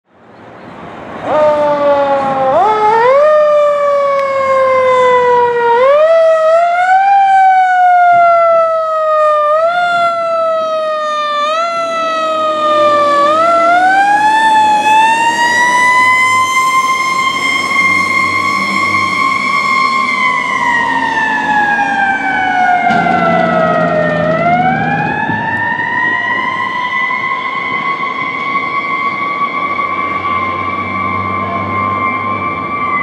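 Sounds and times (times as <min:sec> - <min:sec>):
fire truck siren wailing: 0:01.0 - 0:33.0
truck engine running: 0:22.8 - 0:25.7.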